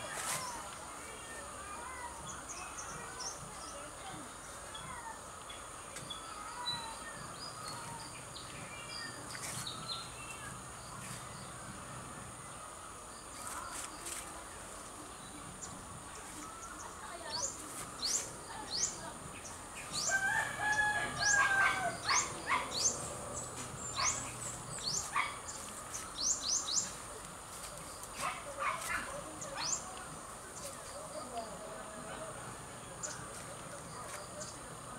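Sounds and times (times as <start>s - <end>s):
insects droning: 0.0s - 34.9s
small birds chirping: 0.0s - 34.9s
rooster crowing: 20.1s - 22.1s.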